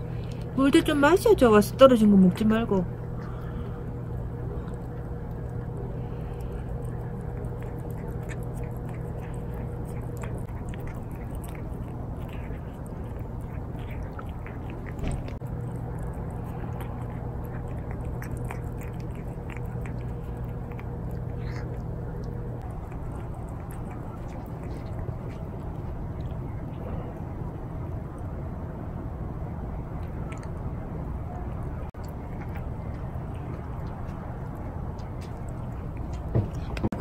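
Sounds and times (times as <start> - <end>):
low hum: 0.0 - 37.0
cat chewing wet food: 2.8 - 37.0.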